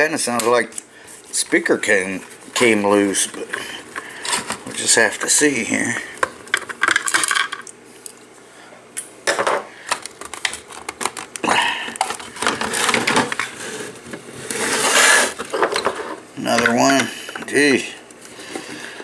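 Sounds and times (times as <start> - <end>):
plastic parts clicking and knocking: 9.9 - 13.5
plastic scraping and rubbing: 12.0 - 15.6.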